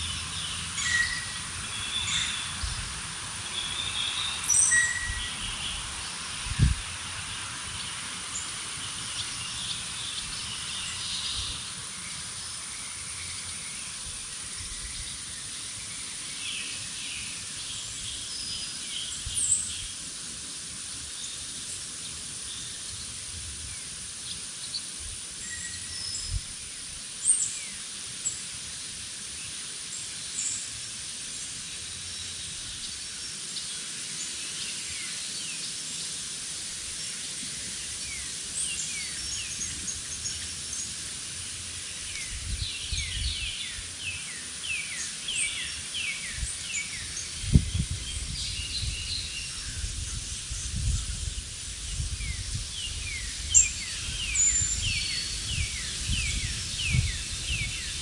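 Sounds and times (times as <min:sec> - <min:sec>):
songbirds chirping and singing: 0:00.0 - 0:02.9
steady high hiss: 0:00.0 - 0:58.0.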